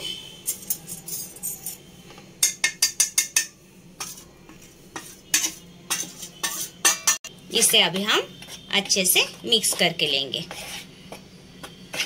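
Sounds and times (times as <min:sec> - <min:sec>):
kitchenware clinking and tapping: 0:02.4 - 0:07.3.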